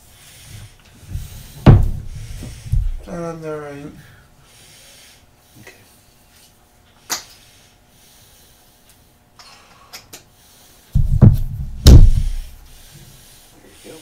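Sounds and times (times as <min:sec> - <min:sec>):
deep bumps and rubbing on microphone: 0:01.1 - 0:03.1, 0:11.0 - 0:12.7.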